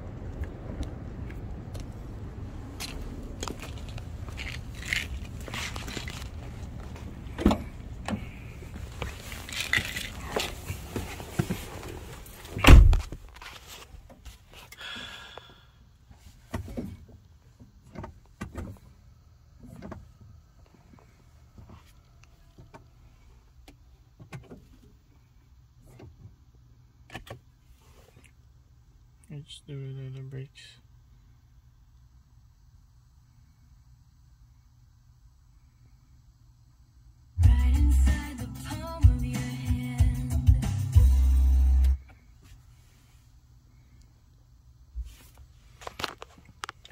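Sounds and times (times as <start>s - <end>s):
handling and rustling: 3.5s - 14.7s, 45.0s - 46.9s
car door shutting: 6.8s - 9.1s, 9.8s - 13.2s.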